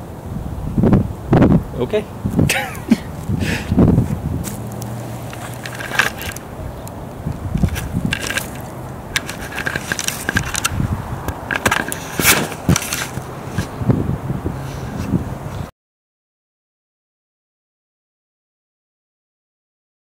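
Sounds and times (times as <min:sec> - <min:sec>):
bark mulch crunching and scraping: 0:03.1 - 0:13.8
camera handling knocks: 0:07.6 - 0:13.7.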